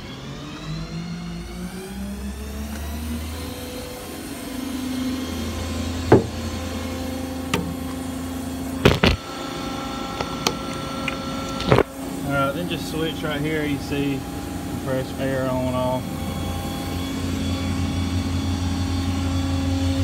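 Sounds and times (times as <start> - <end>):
diesel engine running: 0.0 - 20.0
sharp metal knocks: 6.1 - 6.6.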